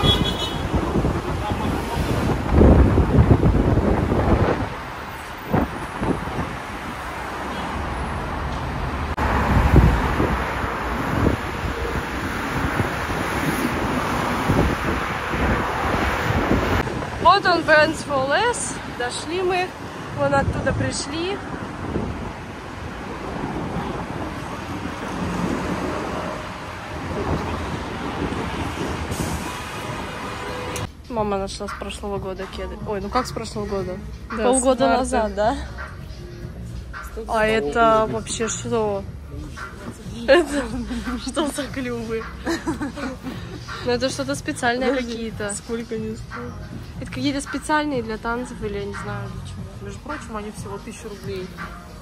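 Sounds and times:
wind buffeting microphone: 0.0s - 7.2s, 8.3s - 33.9s
road traffic noise: 0.0s - 52.0s.

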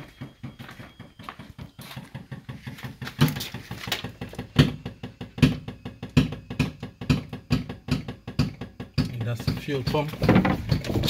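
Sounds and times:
fuel pump pulsing: 0.0s - 11.0s
louder knocks: 4.0s - 11.0s.

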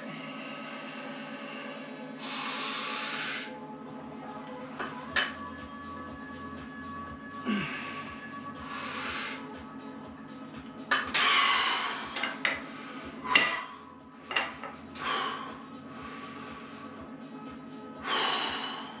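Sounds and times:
man breathing hard: 0.0s - 3.6s, 7.4s - 9.6s, 11.1s - 17.1s, 18.0s - 19.0s.

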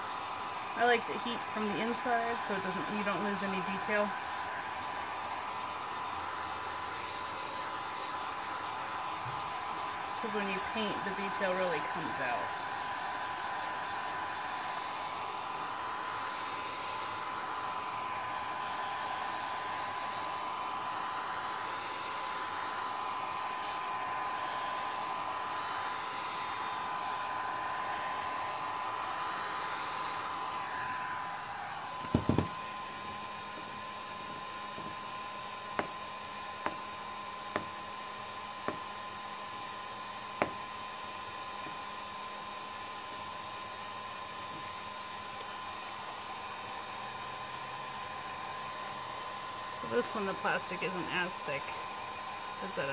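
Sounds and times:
heat gun blowing hot air: 0.0s - 52.9s
heat gun knocking down: 32.0s - 35.1s.

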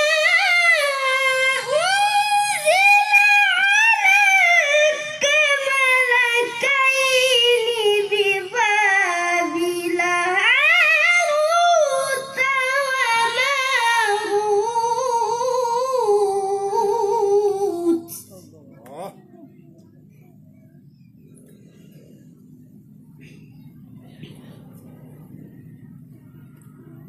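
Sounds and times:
boy reciting melodically: 0.0s - 19.7s.

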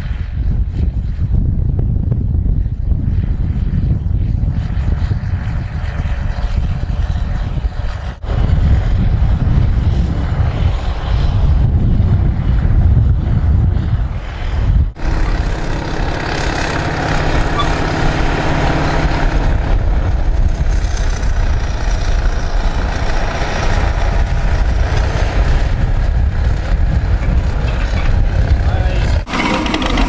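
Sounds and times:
diesel tractor running under load: 15.0s - 30.0s.

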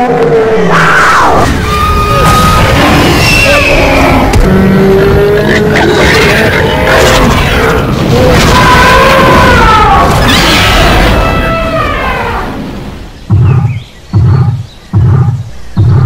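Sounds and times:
heavy booming footsteps: 13.0s - 16.0s.

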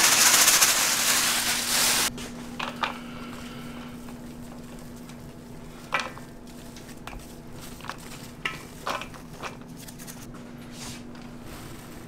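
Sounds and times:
steady low hum: 0.0s - 12.0s
hands mixing ground beef: 3.9s - 11.0s.

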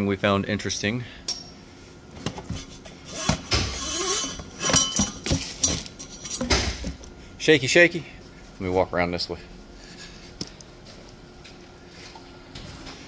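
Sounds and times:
metal tools clinking and rattling: 3.2s - 6.9s.

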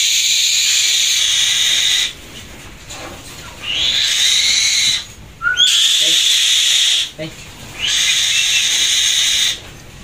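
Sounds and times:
hawk screeching: 3.6s - 7.2s, 7.8s - 9.6s.

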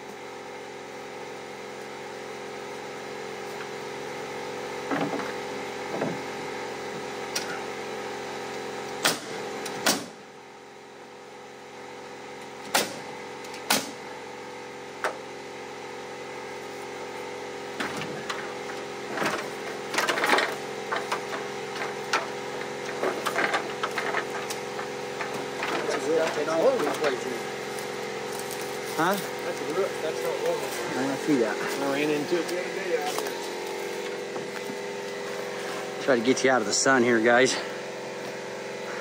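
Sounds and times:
engine running steadily: 0.0s - 39.0s
sharp knocks and rattles: 17.8s - 27.0s.

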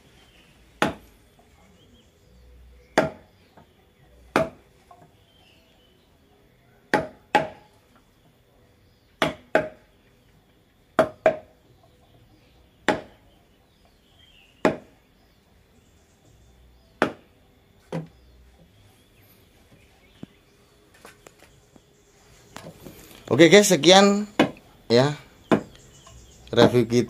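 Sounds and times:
mallet knocking chisel into wood: 0.8s - 1.0s, 3.0s - 3.2s, 4.3s - 4.6s, 6.9s - 7.6s, 9.2s - 9.8s, 11.0s - 11.5s, 12.8s - 13.2s, 14.6s - 14.9s, 17.0s - 17.2s, 24.4s - 24.6s, 25.5s - 25.7s.

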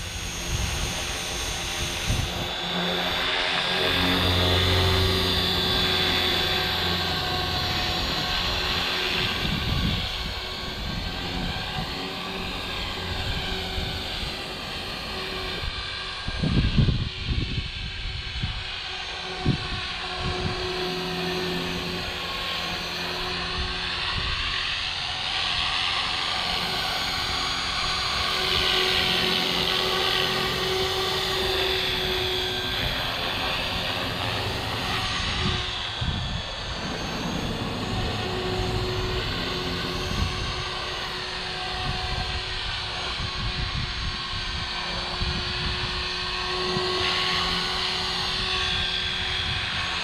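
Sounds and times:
electric motor high whine: 0.0s - 50.0s
rotor blades humming: 0.0s - 50.0s
wind gusts on microphone: 0.0s - 50.0s.

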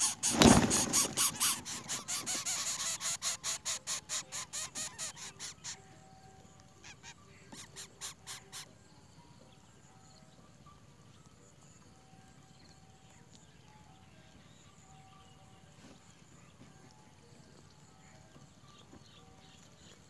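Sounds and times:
nestling begging calls: 0.0s - 8.7s
rustling thump in nest: 0.2s - 1.6s.

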